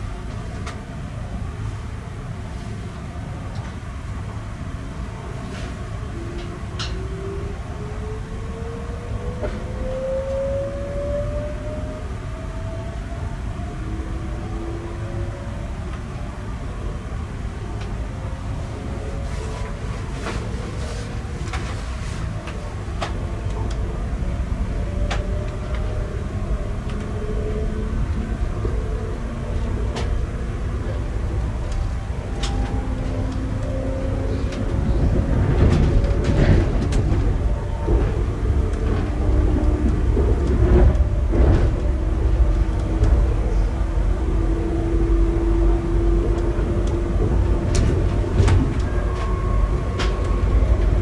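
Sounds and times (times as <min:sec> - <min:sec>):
train running gear rumble: 0:00.0 - 0:51.0
wheels clicking over rail joints: 0:30.9 - 0:44.4.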